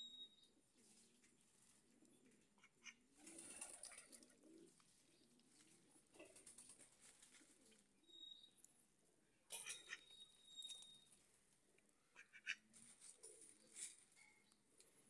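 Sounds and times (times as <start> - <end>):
ducks calling softly: 2.3 - 3.1, 9.5 - 10.2, 12.0 - 13.9.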